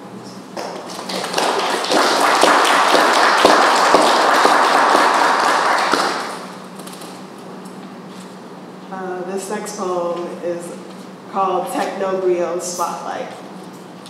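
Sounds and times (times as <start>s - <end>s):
audience clapping: 0.6s - 7.0s.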